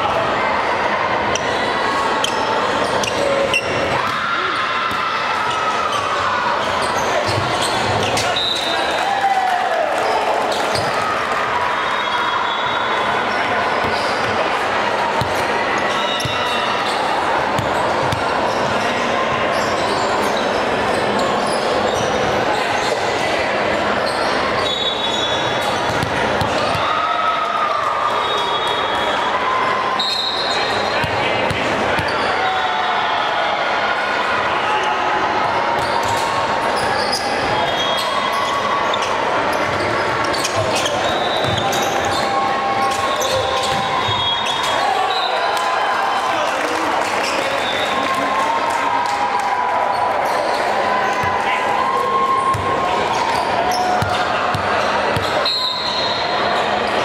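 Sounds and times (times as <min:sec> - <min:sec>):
echoing chatter of people: 0:00.0 - 0:57.0
hubbub of indistinct voices: 0:00.0 - 0:57.0
sneakers squeaking on hardwood: 0:06.6 - 0:08.6, 0:39.5 - 0:44.8.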